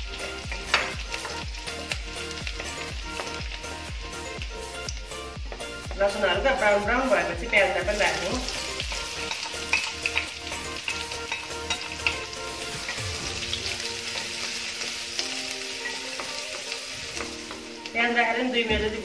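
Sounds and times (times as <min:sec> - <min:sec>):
onions sizzling in hot oil: 0:00.0 - 0:19.0
spatula clicking and scraping pan: 0:00.2 - 0:03.5, 0:08.9 - 0:13.0.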